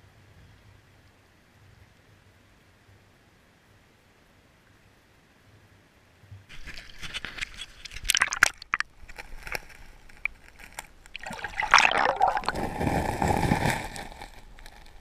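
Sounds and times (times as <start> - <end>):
water sloshing and gurgling: 6.5 - 14.8.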